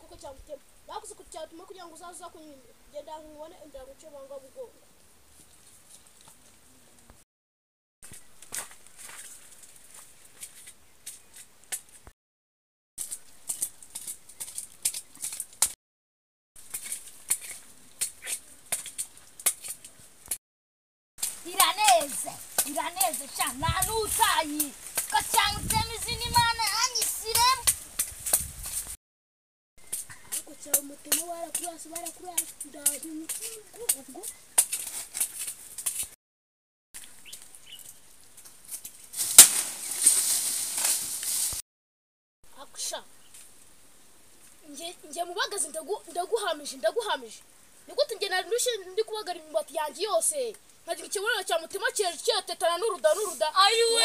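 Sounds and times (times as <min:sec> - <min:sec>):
twigs snapping: 0:21.2 - 0:25.8, 0:29.8 - 0:36.1, 0:37.0 - 0:41.6
dry leaves crackling: 0:21.2 - 0:29.0, 0:37.0 - 0:41.6
wooden stick whack: 0:39.2 - 0:41.0.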